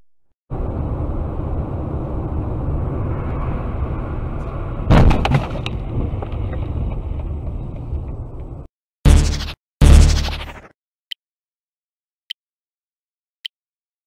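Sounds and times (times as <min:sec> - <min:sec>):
road and tyre rumble: 0:00.5 - 0:08.7
car collision bang and crunch: 0:04.9 - 0:06.2.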